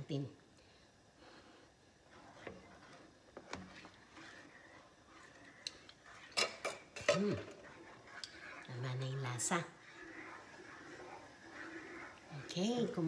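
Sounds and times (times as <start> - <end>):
spatula stirring in metal pot: 0.7 - 13.0
utensil clicking against pot: 5.5 - 8.8.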